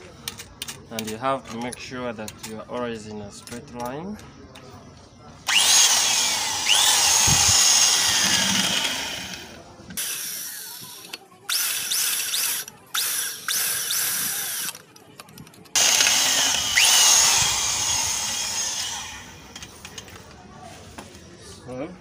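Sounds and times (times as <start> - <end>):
electric drill boring into metal: 5.5 - 10.9, 11.5 - 14.8, 15.8 - 19.3.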